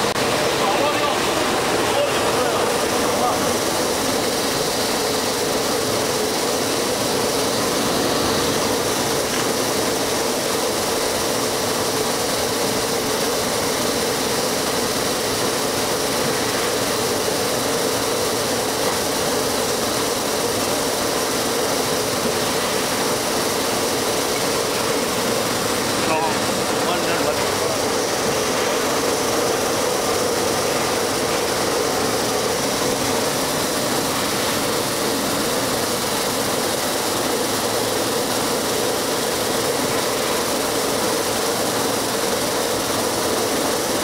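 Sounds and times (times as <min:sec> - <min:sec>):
machine motor and rollers humming: 0:00.0 - 0:44.0.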